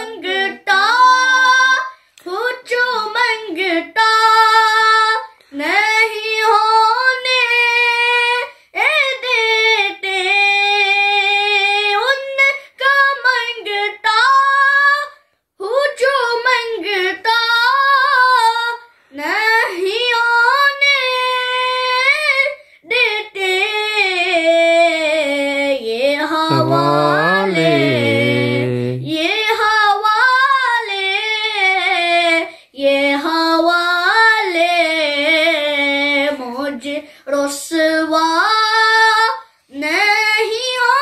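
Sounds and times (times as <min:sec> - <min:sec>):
boy singing unaccompanied: 0:00.0 - 0:41.0.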